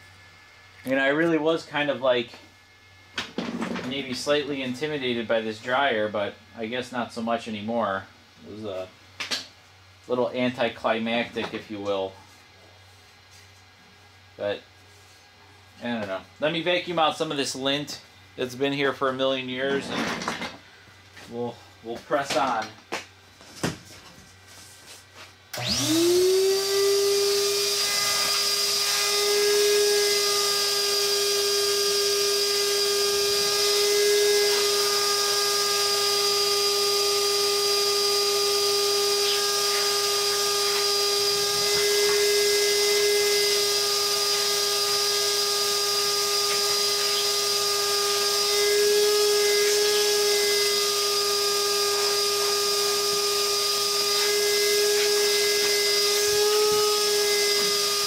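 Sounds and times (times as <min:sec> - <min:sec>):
vacuum cleaner motor whine: 0:25.5 - 0:58.0.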